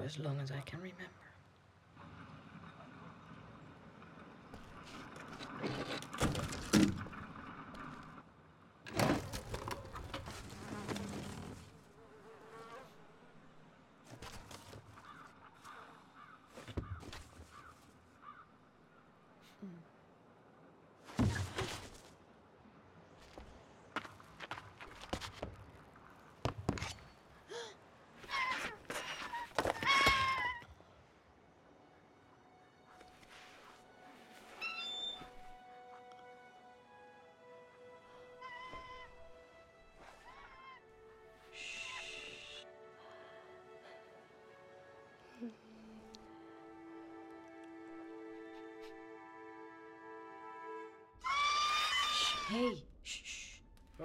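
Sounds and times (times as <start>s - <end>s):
footfalls on crates: 21.1s - 22.1s
creature high wavering squeals: 51.2s - 52.6s.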